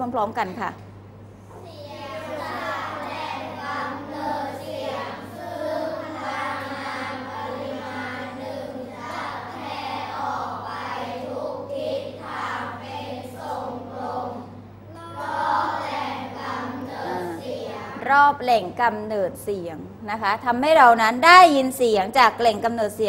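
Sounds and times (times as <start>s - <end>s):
children reading aloud in unison: 1.5s - 18.4s.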